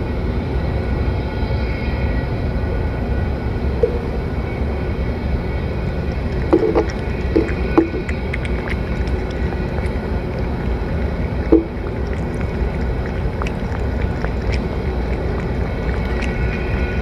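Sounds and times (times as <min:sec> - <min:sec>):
steady low rumble: 0:00.0 - 0:17.0
cat chewing and licking: 0:06.0 - 0:17.0.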